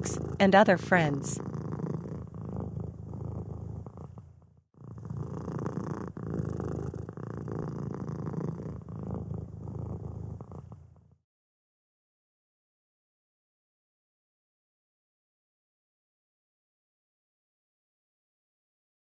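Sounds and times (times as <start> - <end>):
cat purring: 0.0 - 11.2.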